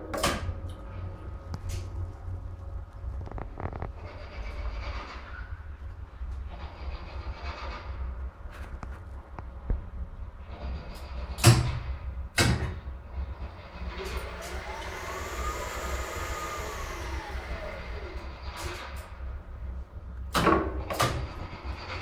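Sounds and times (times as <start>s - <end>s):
steady low hum: 0.0s - 22.0s
motor whine: 13.8s - 19.0s.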